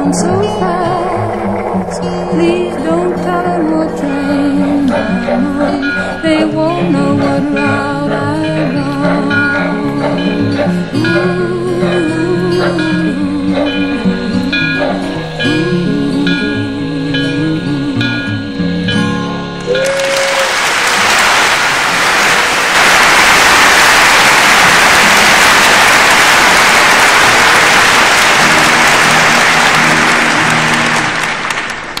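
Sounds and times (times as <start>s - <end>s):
audience applause: 0.0s - 6.4s, 7.3s - 12.0s, 19.7s - 32.0s
guitar music: 0.0s - 20.0s, 23.3s - 32.0s.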